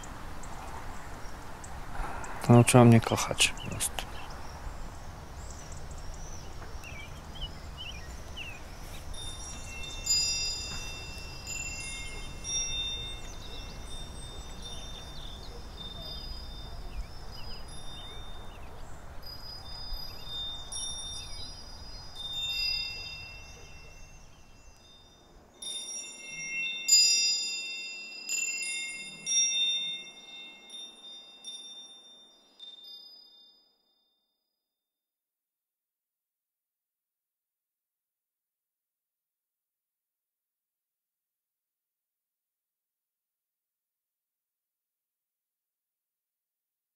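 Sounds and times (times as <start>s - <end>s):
birds chirping: 0.0s - 25.2s
wind chimes ringing: 4.3s - 34.3s.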